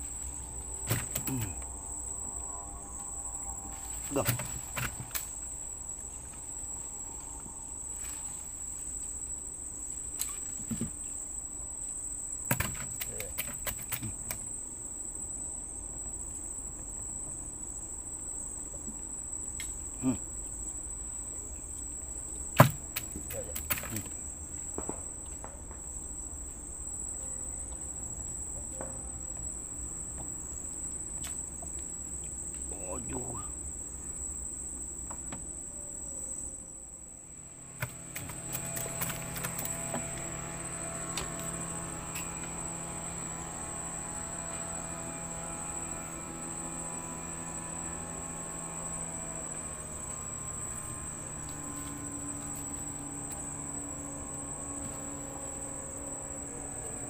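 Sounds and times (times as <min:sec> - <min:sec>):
night insects trilling: 0:00.0 - 0:57.0
sharp knocks: 0:00.8 - 0:01.6, 0:12.5 - 0:14.1.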